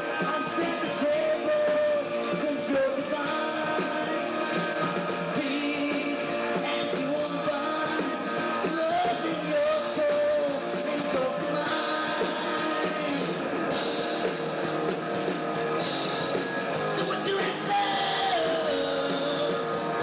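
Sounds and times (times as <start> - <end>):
live rock band playing: 0.0 - 20.0.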